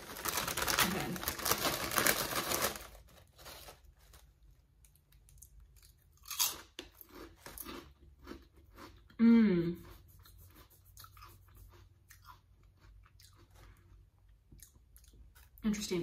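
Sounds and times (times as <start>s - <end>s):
foil chip bag crinkling: 0.0s - 5.4s
crunchy chip bite and chewing: 4.9s - 9.2s, 9.8s - 15.6s.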